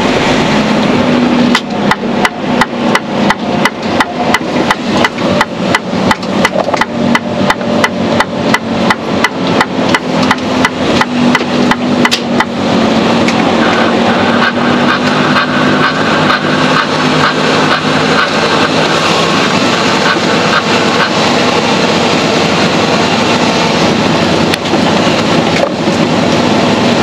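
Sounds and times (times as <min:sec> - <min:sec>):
truck engine hum: 0:00.0 - 0:27.0
turn signal ticking: 0:01.5 - 0:12.6.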